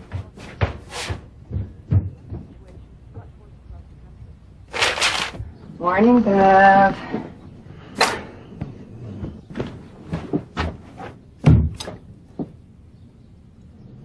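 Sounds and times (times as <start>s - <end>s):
soft handling knocks and rustles: 8.6s - 11.2s.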